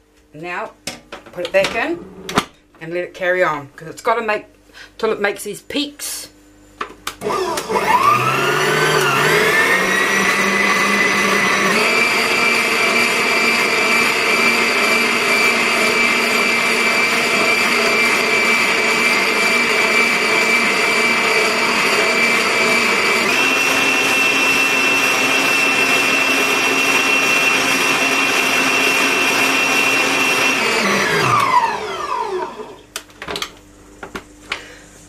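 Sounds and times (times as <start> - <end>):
stand mixer motor whine: 7.2 - 32.8.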